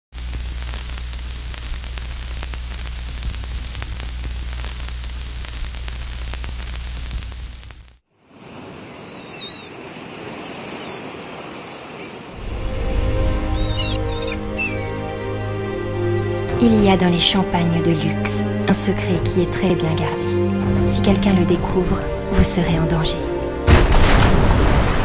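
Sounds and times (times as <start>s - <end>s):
old film hiss and crackle: 0.1s - 8.0s
faint chirps: 8.8s - 9.8s, 13.6s - 15.6s.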